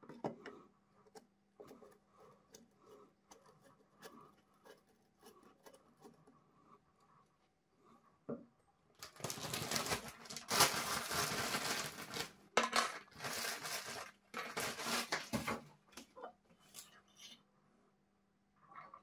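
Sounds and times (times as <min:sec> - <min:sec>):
rustling and scraping on countertop: 0:09.2 - 0:17.4.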